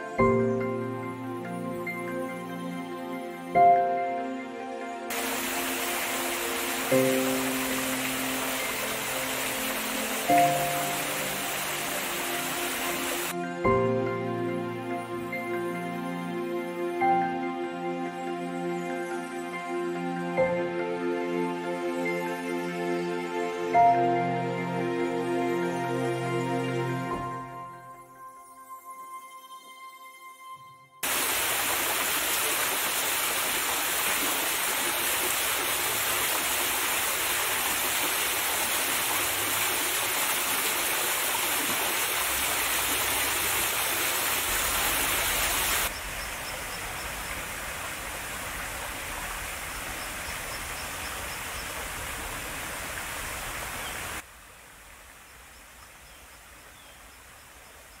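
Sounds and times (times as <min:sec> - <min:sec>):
soft piano music: 0:00.0 - 0:28.9
waterfall rushing: 0:05.1 - 0:13.4, 0:31.0 - 0:54.2.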